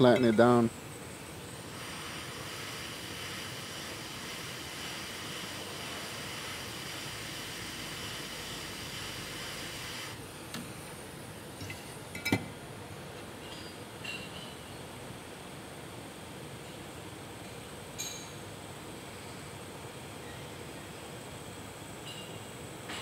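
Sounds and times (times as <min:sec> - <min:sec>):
hot air rework station hissing: 0:00.0 - 0:17.2.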